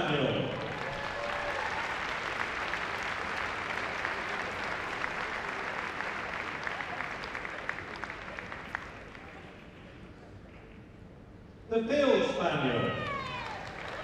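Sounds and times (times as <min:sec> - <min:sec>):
audience applauding: 0:00.4 - 0:09.8, 0:13.0 - 0:14.0.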